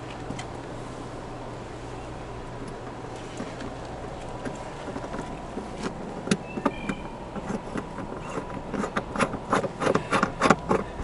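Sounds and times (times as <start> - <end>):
hose coupler metallic clicks and taps: 2.6 - 11.0.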